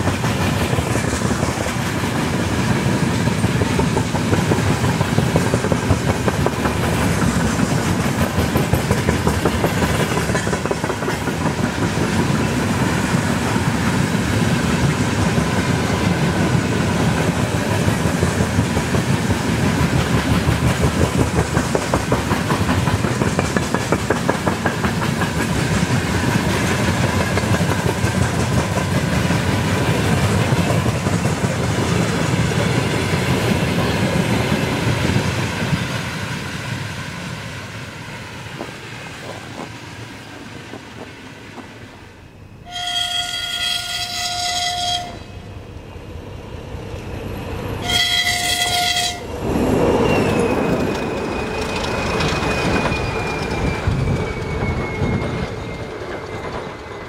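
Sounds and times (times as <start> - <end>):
train wheels clattering over rails: 0.0 - 36.9, 38.4 - 41.9, 47.8 - 57.0.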